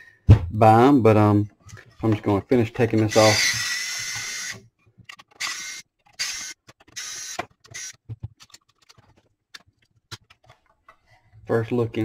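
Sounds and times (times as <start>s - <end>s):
electric screwdriver running: 3.1s - 4.6s, 5.4s - 8.0s.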